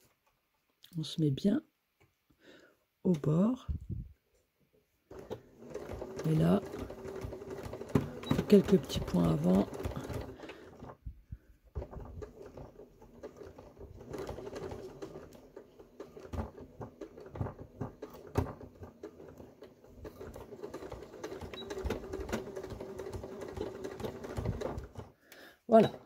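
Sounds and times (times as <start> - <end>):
sewing machine stitching: 5.1 - 11.0, 11.7 - 26.0.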